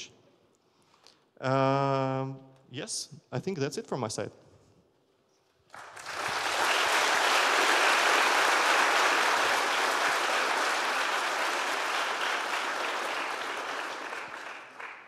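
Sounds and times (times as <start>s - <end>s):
audience applauding: 5.7s - 15.0s.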